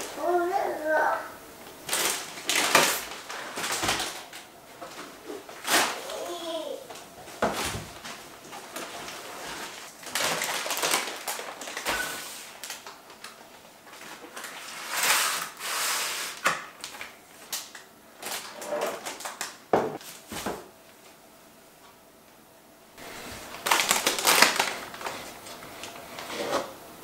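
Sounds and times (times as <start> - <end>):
bag and plastic packaging rustling: 1.7 - 21.1, 23.0 - 26.8
cans and jars knocking on counter: 19.7 - 20.6.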